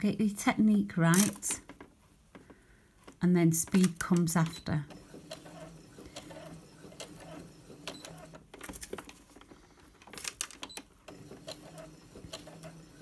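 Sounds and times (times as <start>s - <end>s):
sewing machine motor hum: 4.8s - 8.4s, 11.1s - 13.0s.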